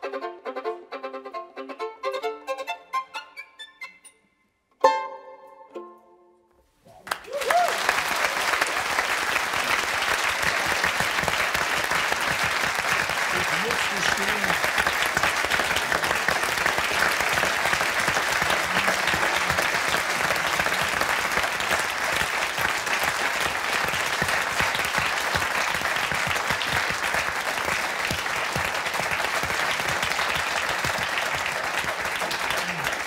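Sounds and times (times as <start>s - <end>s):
studio audience applauding: 6.9s - 33.0s.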